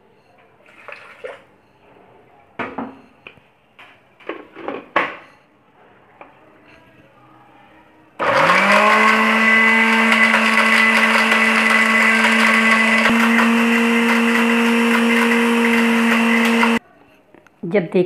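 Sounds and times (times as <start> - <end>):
blender dial switch: 8.2 - 16.8
blender motor grinding: 8.2 - 16.8.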